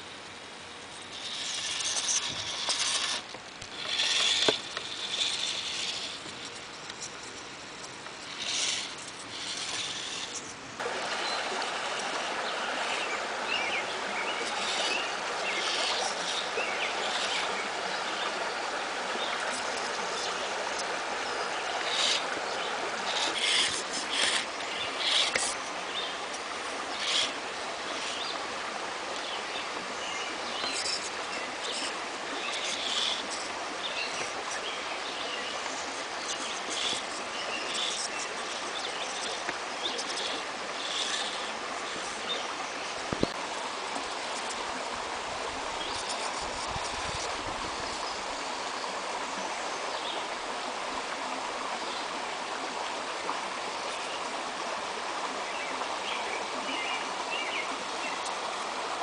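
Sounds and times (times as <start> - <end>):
creek water rushing: 0.0 - 59.0
scraping and clicking: 1.0 - 10.6, 23.0 - 25.7, 35.8 - 42.3.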